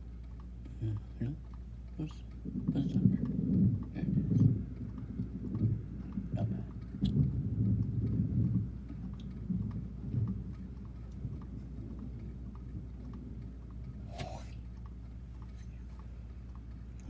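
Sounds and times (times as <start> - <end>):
distant thunder rumbling: 2.0 - 14.7.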